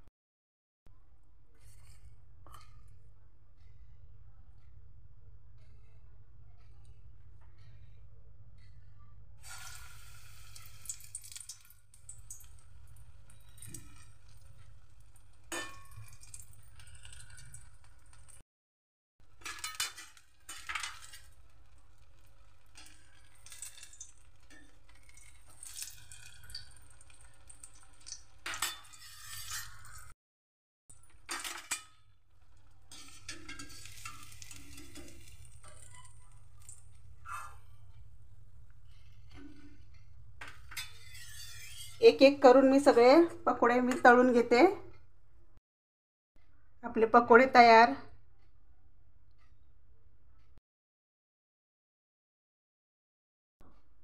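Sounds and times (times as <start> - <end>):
oil sizzling: 9.4 - 18.4, 19.2 - 30.1, 30.9 - 37.2
spoon clinking on steel: 32.9 - 36.7.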